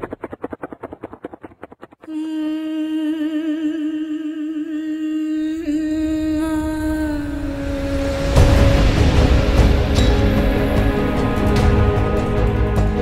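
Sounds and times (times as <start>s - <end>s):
rapid pulsing logo sound effect: 0.0s - 2.1s
background music with held note: 7.8s - 13.0s.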